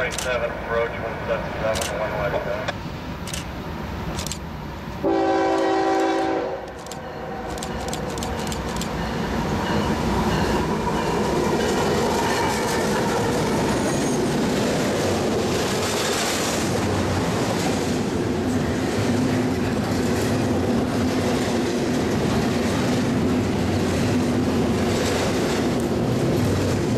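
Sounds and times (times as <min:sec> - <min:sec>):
freight train passing: 0:00.0 - 0:26.9
locomotive horn blast: 0:05.0 - 0:06.7.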